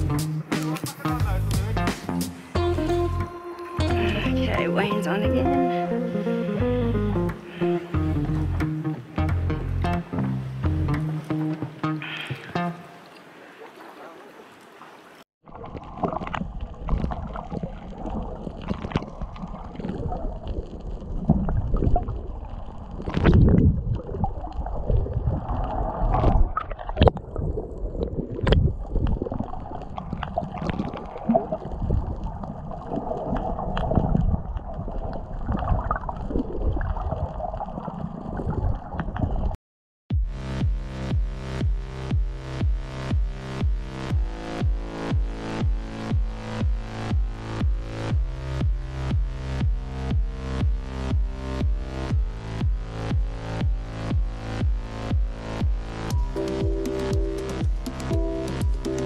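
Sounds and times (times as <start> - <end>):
muffled underwater sloshing: 11.1 - 39.4.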